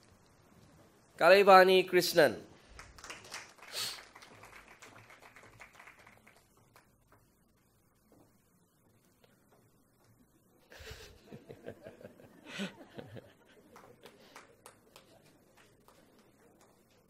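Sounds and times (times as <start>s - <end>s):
soft chuckling laugh: 10.6s - 14.2s.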